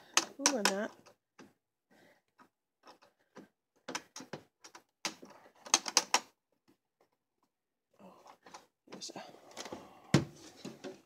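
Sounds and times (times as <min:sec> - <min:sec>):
hard plastic clicking and knocking: 0:02.8 - 0:06.3.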